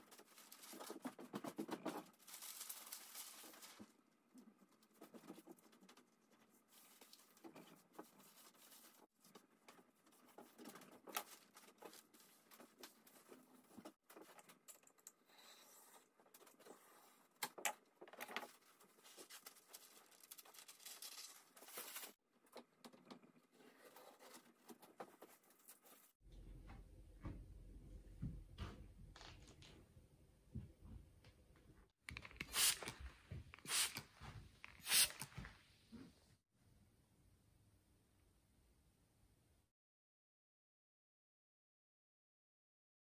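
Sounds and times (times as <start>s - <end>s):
paper rustling and crackling: 0.0s - 14.7s, 18.0s - 22.2s.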